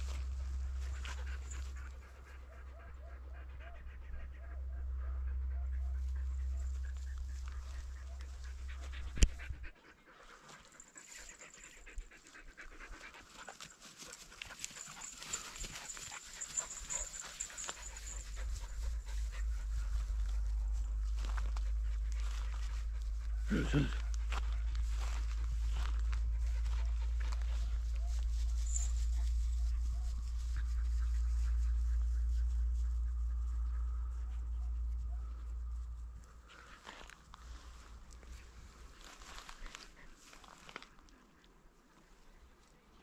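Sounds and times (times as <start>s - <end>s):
low rumble on microphone: 0.0s - 9.8s, 16.6s - 39.8s
dogs panting: 0.0s - 43.0s.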